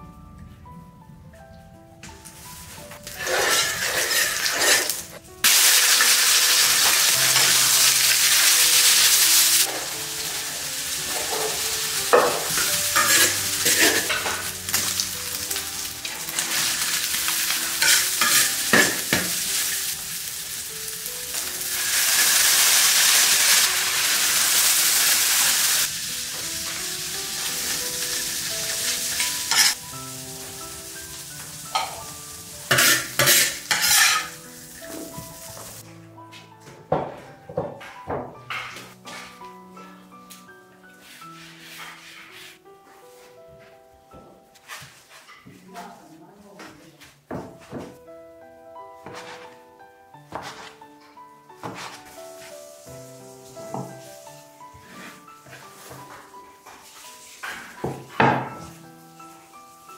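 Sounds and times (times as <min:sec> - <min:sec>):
food sizzling in pan: 0:02.5 - 0:35.8, 0:51.7 - 0:59.9
spatula scraping pan: 0:03.1 - 0:05.2, 0:11.0 - 0:15.0, 0:16.1 - 0:19.4, 0:28.8 - 0:29.8, 0:31.7 - 0:34.4, 0:41.0 - 0:42.6, 0:54.8 - 0:56.3.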